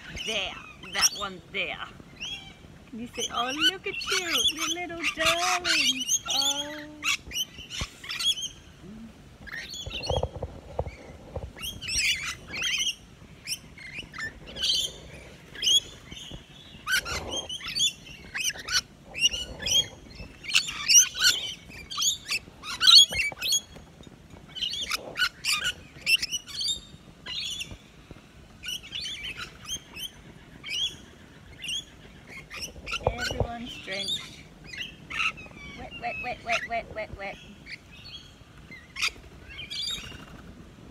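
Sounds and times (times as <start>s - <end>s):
lorikeets chattering: 0.0s - 8.8s, 28.6s - 40.3s.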